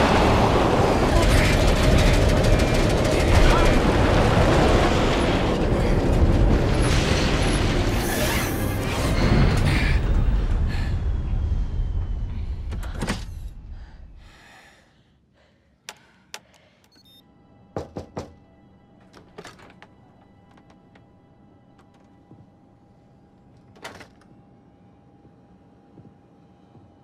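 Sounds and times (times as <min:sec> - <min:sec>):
jet aircraft rumbling and rattling: 0:00.1 - 0:07.8
music: 0:05.8 - 0:12.9, 0:17.0 - 0:27.0.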